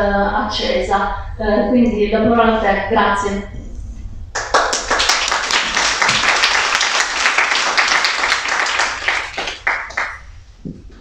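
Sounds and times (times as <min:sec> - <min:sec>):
audience applause: 0:04.4 - 0:10.2.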